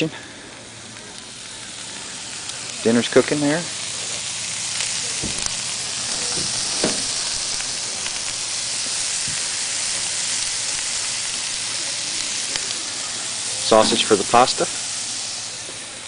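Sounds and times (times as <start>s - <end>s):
sausage sizzling: 0.0s - 16.0s.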